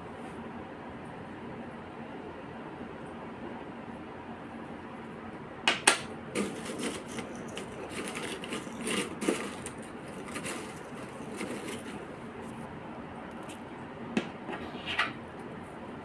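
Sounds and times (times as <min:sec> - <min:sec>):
chips crackling in plastic bowl: 0:06.4 - 0:12.2.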